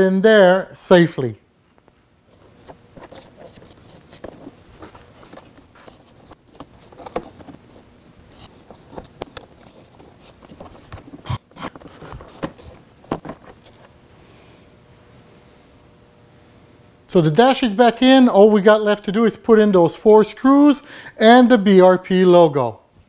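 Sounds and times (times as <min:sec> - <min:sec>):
plastic panel clicking and rubbing: 0:02.6 - 0:13.8.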